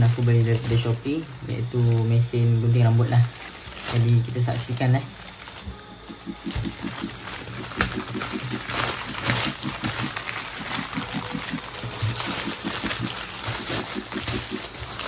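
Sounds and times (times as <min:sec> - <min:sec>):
plastic mailer tearing: 0:00.0 - 0:15.0.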